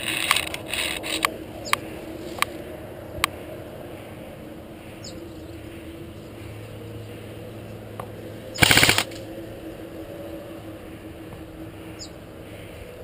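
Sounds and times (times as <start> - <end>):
airsoft rifle full-auto burst: 8.6 - 9.2.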